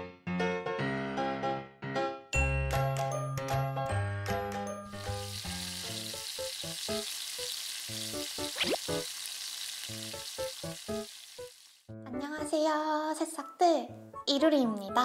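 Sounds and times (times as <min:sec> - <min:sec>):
sizzling hiss: 0:04.9 - 0:11.9
plucked background music: 0:11.9 - 0:15.0.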